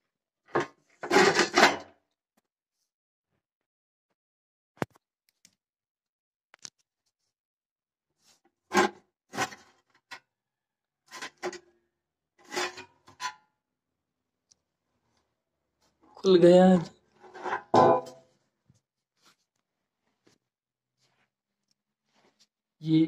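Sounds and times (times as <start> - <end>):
metallic scrapes and rattles: 12.4 - 13.4, 17.2 - 18.2.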